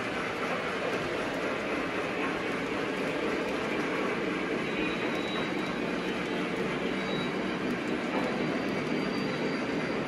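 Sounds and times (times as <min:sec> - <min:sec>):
model train rolling on track: 0:00.0 - 0:10.0.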